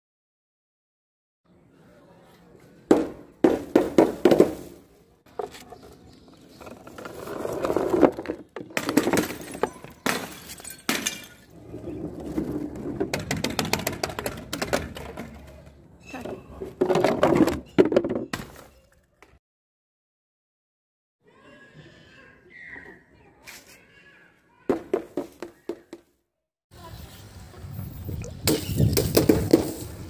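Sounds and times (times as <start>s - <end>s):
glass bottles shattering: 8.8s - 11.5s.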